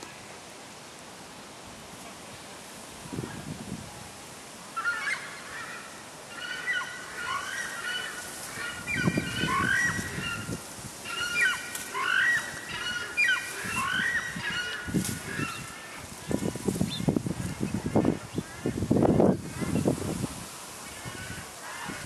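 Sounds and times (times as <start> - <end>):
birds honking: 4.8 - 19.9, 20.8 - 22.0.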